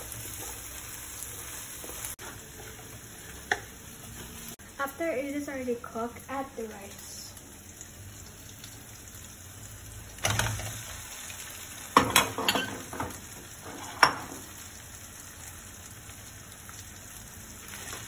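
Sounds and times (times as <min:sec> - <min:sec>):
food sizzling in a wok: 0:00.0 - 0:18.0
utensils clacking against wok: 0:12.0 - 0:14.4.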